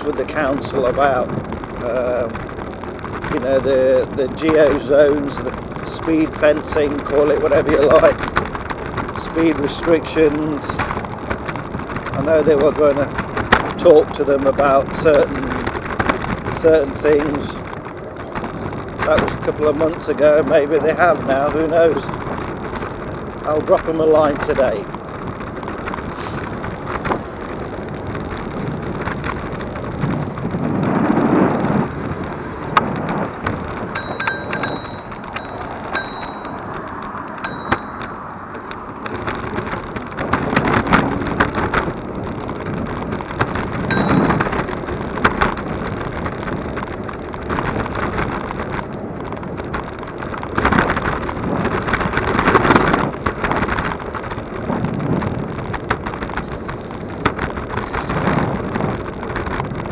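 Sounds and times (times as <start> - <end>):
road and wind noise: 0.0 - 59.9
handlebar bell dings: 34.0 - 36.8, 37.4 - 38.2, 43.9 - 44.6.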